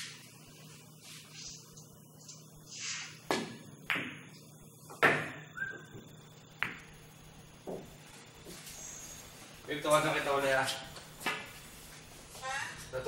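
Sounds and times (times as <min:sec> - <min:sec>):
billiard balls clicking: 0:05.9 - 0:07.0.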